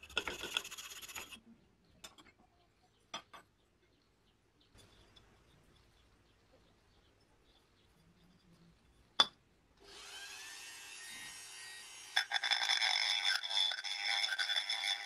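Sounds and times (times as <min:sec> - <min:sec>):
rotary tool whining: 0:09.8 - 0:15.0
burr grinding metal: 0:10.0 - 0:15.0.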